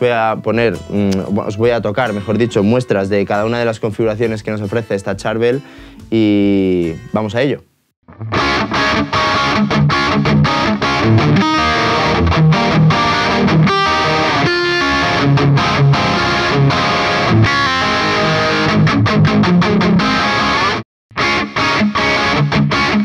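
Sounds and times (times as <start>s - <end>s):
distorted electric guitar riff: 8.1s - 23.0s.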